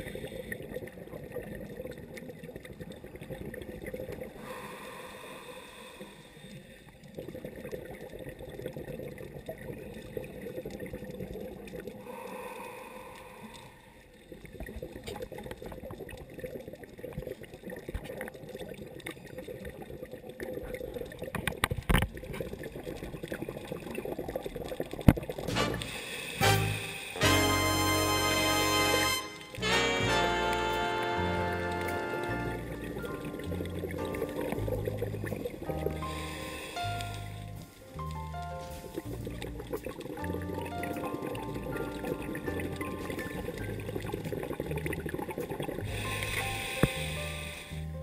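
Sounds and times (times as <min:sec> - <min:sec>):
gurgling exhaled bubbles underwater: 0:00.0 - 0:05.4, 0:06.0 - 0:26.0, 0:31.5 - 0:48.0
regulator inhale hiss: 0:04.4 - 0:06.9, 0:25.8 - 0:27.2, 0:36.0 - 0:37.0, 0:45.9 - 0:47.9.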